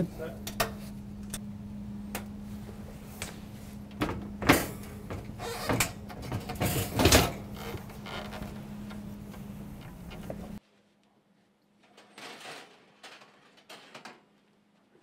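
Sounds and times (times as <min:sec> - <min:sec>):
steady low hum: 0:00.0 - 0:10.6
oven door scraping: 0:02.7 - 0:10.6.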